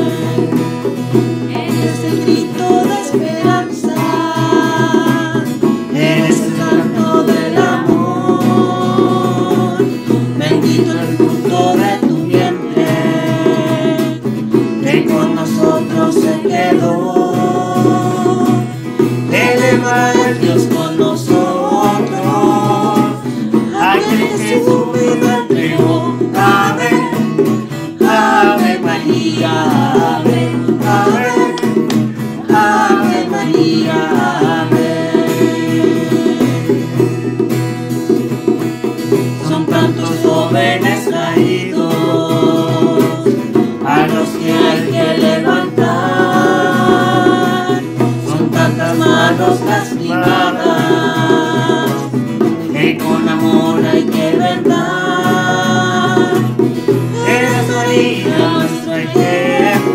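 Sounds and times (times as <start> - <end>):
mixed voices singing: 0.0 - 38.3, 38.9 - 59.9
hand drums: 0.0 - 59.9
strummed acoustic guitars: 0.0 - 59.9.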